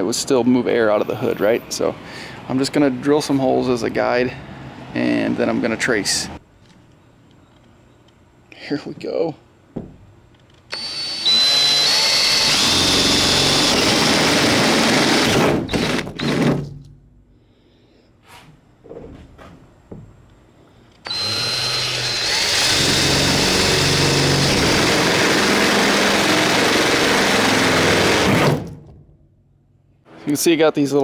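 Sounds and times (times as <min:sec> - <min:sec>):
cordless drill drilling metal: 0:10.7 - 0:16.5, 0:21.0 - 0:28.6.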